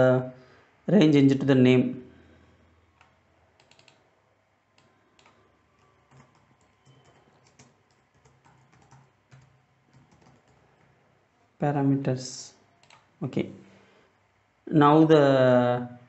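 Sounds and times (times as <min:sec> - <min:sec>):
keyboard typing: 0:03.0 - 0:04.0, 0:04.8 - 0:11.0, 0:12.8 - 0:13.2.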